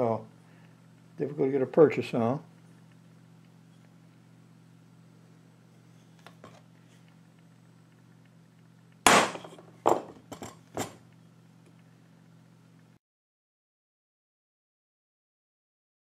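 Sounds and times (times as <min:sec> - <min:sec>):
hammer striking metal punch: 0:09.1 - 0:10.0.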